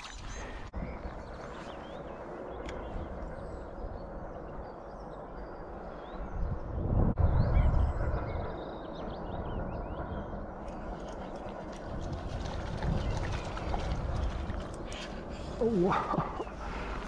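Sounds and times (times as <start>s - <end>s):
low rumble: 0.3s - 17.0s.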